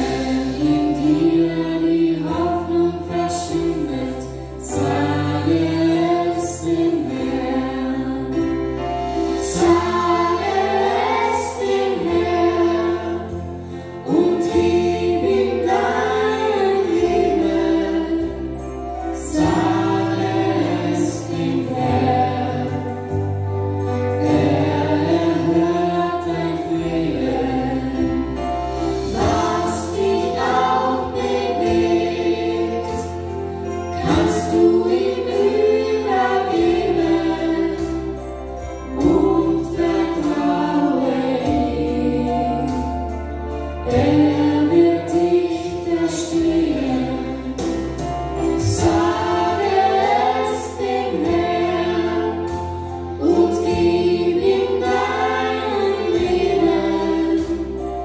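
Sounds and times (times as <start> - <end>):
group singing worship song: 0.0 - 58.0.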